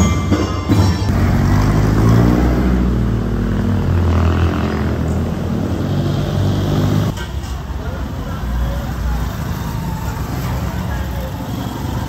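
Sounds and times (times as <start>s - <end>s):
street traffic: 0.0s - 12.0s
vehicle engine humming: 0.7s - 12.0s.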